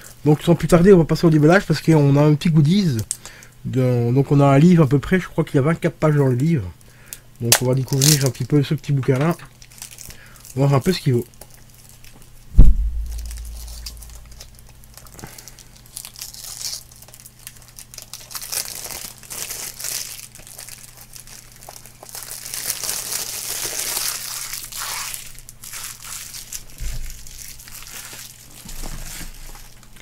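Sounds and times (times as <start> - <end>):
plastic wrap crinkling and tearing: 7.4 - 30.0
soft bump: 12.6 - 14.4.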